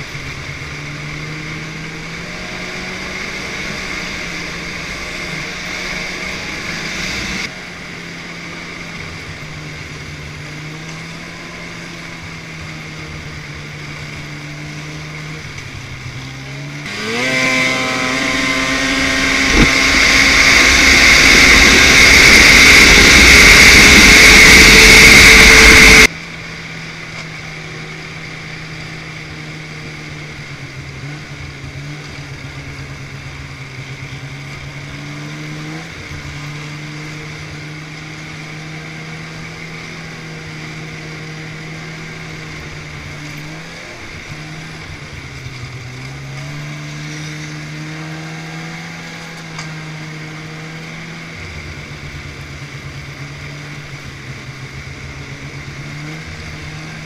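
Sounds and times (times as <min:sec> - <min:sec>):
snowmobile engine: 0:00.0 - 0:57.0.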